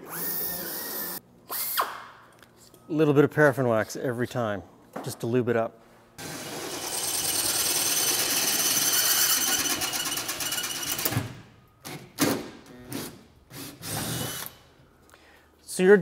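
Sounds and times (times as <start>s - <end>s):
cordless drill drilling metal: 6.3s - 10.9s, 13.5s - 14.5s.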